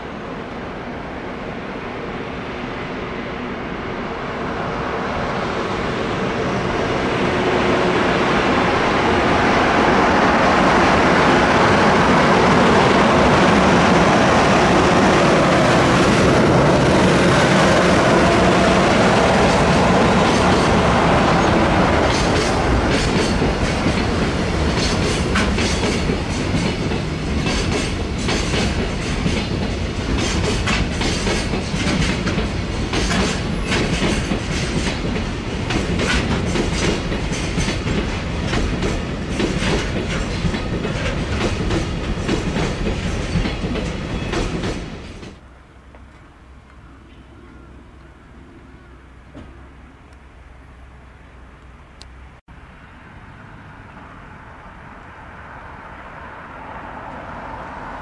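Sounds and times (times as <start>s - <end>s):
train wheels clacking over rail joints: 10.7s - 45.4s.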